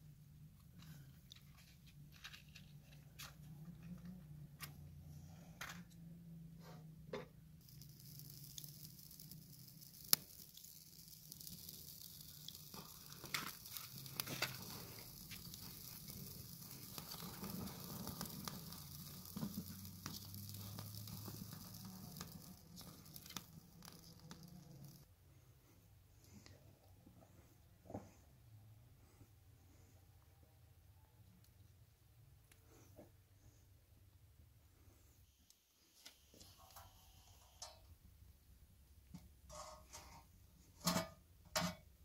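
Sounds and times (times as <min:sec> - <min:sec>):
kindling fire crackling: 0:07.6 - 0:25.1
rustling of dry grass: 0:07.7 - 0:25.0.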